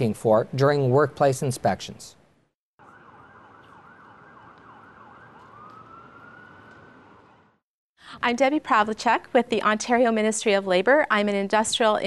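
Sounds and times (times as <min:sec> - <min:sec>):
faint emergency siren: 0:02.8 - 0:07.6
street noise: 0:02.8 - 0:07.6.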